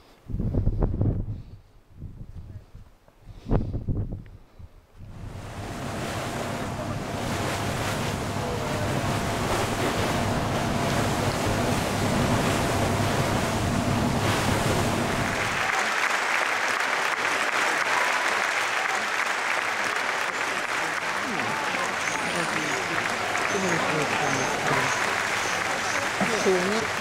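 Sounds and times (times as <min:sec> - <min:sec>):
wind and rushing water: 0:05.0 - 0:27.0
boat engine running: 0:05.1 - 0:16.0, 0:18.6 - 0:27.0
crowd applauding: 0:15.0 - 0:27.0.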